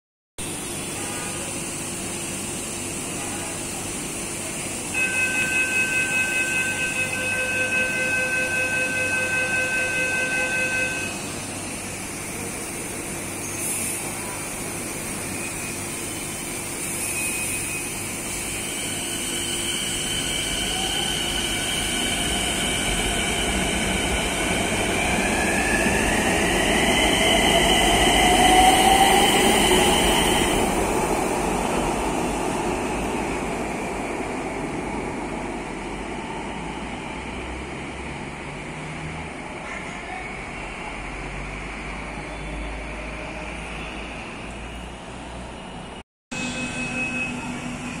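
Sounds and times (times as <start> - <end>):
pulsing electronic beep: 46.4 - 48.0.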